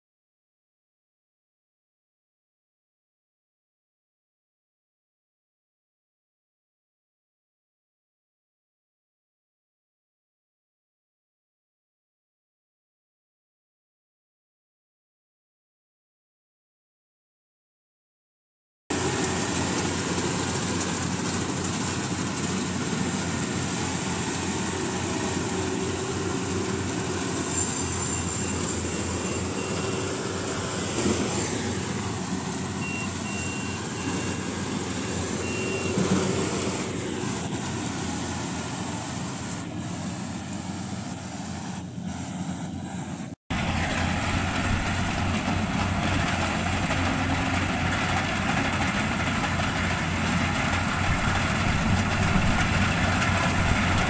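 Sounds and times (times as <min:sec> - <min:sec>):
combine harvester running: 0:18.9 - 0:54.0
faint beeping: 0:27.4 - 0:30.5, 0:32.7 - 0:36.7.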